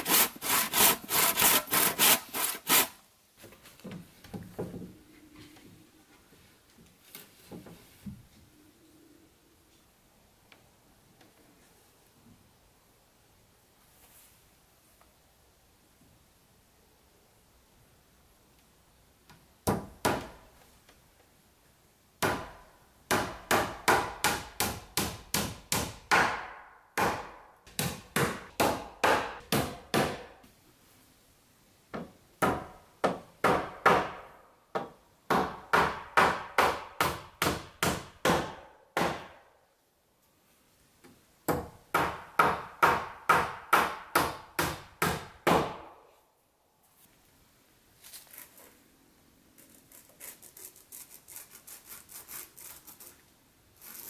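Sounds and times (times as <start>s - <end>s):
hammer driving nails into wood: 22.2s - 30.3s, 32.0s - 39.4s.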